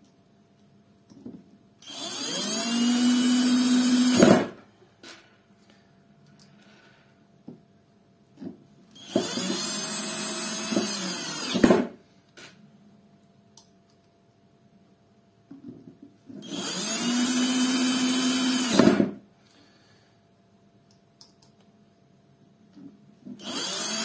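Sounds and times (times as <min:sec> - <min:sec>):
power screwdriver whine: 0:01.8 - 0:04.4, 0:09.0 - 0:11.8, 0:16.4 - 0:19.0, 0:23.4 - 0:24.0.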